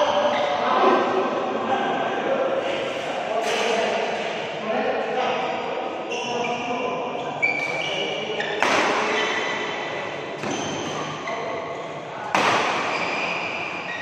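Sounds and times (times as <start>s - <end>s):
shoes squeaking on court: 6.0s - 11.6s, 12.6s - 14.0s
rackets striking shuttlecock: 8.5s - 9.8s, 12.3s - 13.2s.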